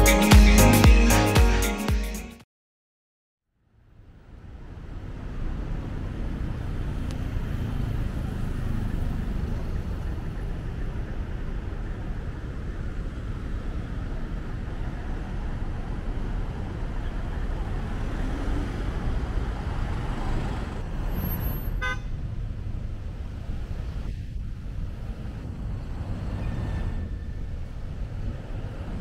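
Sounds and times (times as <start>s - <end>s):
city street traffic: 3.6s - 29.0s
car horn toot: 21.5s - 22.2s.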